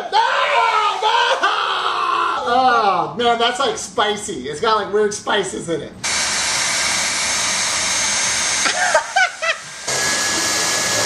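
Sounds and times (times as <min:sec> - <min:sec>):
handheld vacuum running: 0:06.0 - 0:11.0
vacuum sucking up sugar and rice: 0:06.1 - 0:11.0.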